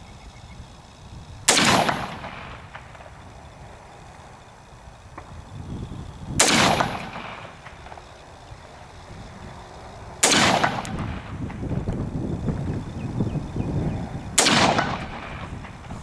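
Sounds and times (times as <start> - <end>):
rifle shots with echo: 1.5 - 3.2, 6.4 - 8.0, 10.2 - 11.3, 14.4 - 15.5.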